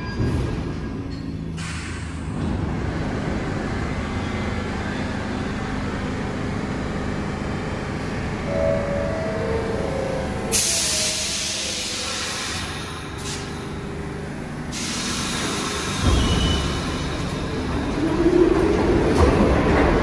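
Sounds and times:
subway train rumbling: 0.0 - 20.0
compressed air hiss: 14.7 - 16.0.

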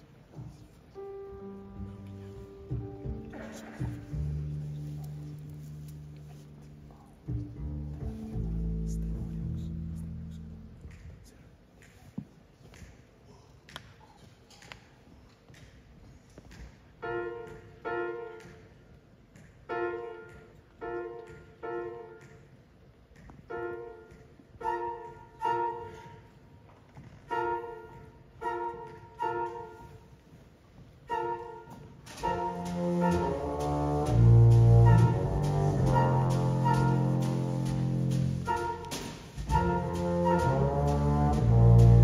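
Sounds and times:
big jazz band playing: 0.5 - 10.8, 23.5 - 26.4, 27.2 - 30.2, 30.9 - 42.0.

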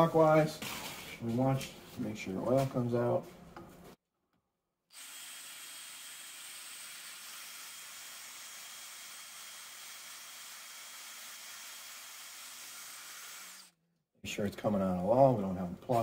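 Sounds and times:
cordless drill whirring: 4.9 - 13.7.

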